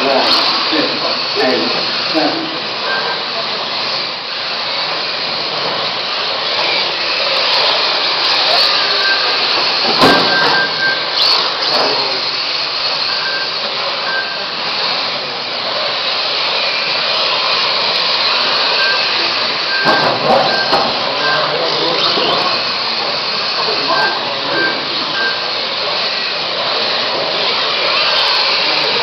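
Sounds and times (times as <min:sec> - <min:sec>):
small electric motors whining: 0:00.0 - 0:29.0
short high beeps: 0:02.8 - 0:03.2, 0:08.5 - 0:12.0, 0:13.0 - 0:14.6, 0:18.7 - 0:22.6, 0:23.8 - 0:25.5
sharp knock: 0:09.9 - 0:10.6.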